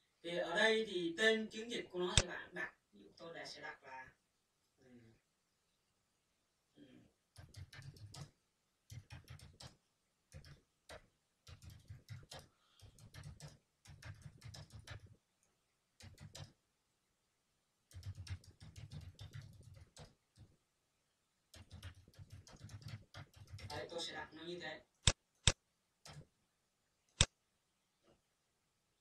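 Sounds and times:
faint keyboard typing: 0:07.3 - 0:16.6, 0:17.9 - 0:20.6, 0:21.5 - 0:24.2, 0:25.0 - 0:26.3.

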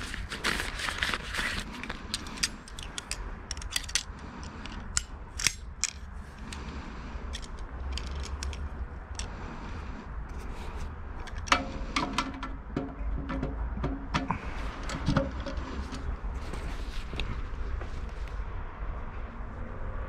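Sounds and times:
steady low rumble: 0:00.0 - 0:20.0
small hard objects clicking: 0:07.3 - 0:09.3.

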